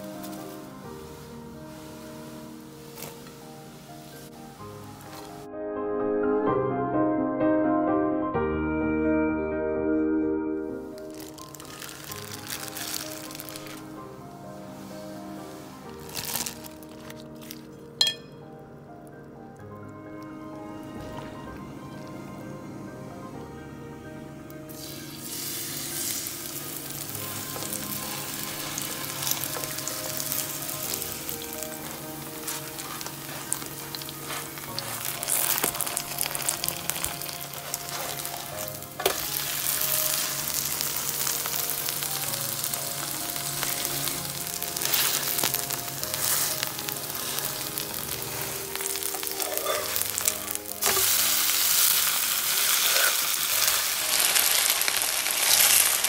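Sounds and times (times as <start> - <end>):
pancake batter sizzling in oil: 24.7 - 56.0.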